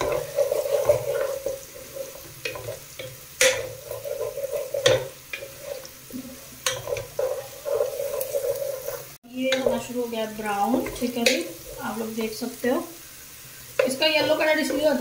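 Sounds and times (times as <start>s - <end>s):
wooden spoon scraping a pot: 0.0s - 9.9s
onions sizzling in oil: 0.0s - 15.0s.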